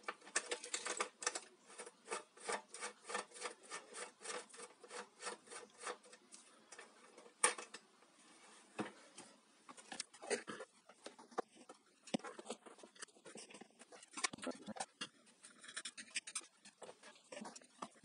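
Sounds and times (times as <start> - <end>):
screwdriver scraping metal cover: 0.0 - 6.2.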